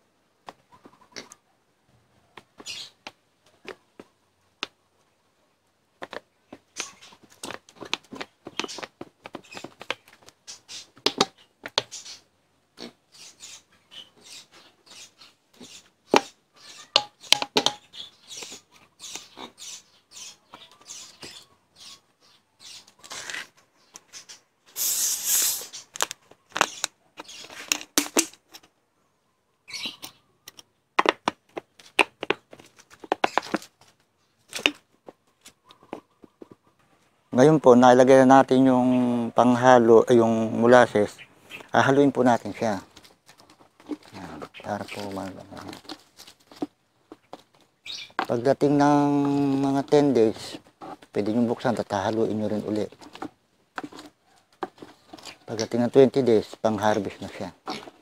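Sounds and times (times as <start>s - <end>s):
plastic bottles crackling: 41.6s - 58.0s.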